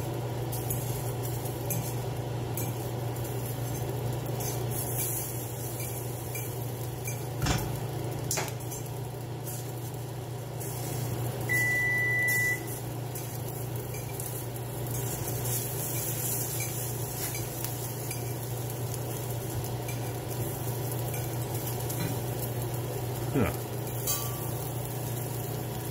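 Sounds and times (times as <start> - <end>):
appliance electronic beep: 11.5 - 12.8.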